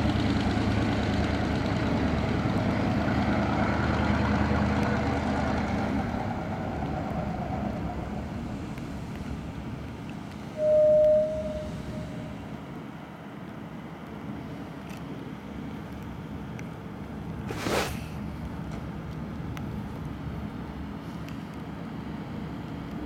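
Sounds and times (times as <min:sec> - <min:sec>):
diesel engine rumble: 0:00.0 - 0:23.0
loud single-pitched tone: 0:10.6 - 0:12.7.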